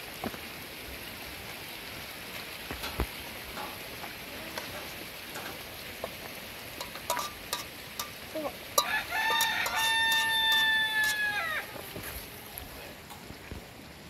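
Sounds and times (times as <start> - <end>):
background hiss: 0.0 - 14.0
rooster crowing: 8.8 - 11.8.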